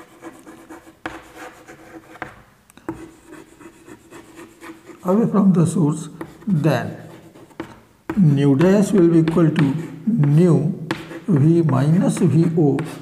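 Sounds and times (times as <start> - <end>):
chalk tapping on board: 0.0 - 5.1, 6.1 - 6.5, 7.1 - 13.0
chalk scratching on chalkboard: 0.0 - 5.4, 6.0 - 7.8, 8.6 - 13.0.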